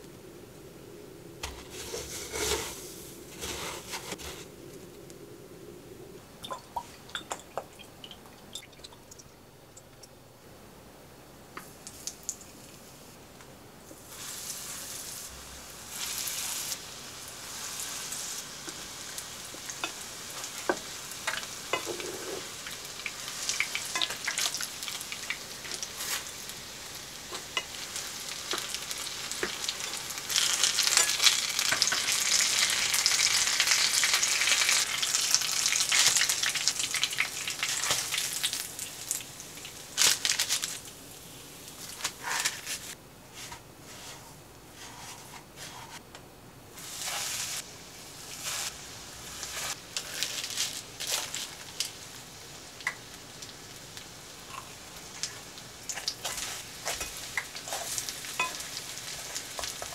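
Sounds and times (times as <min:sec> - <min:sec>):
food sizzling in oil: 0:14.0 - 0:44.2, 0:46.8 - 0:59.9.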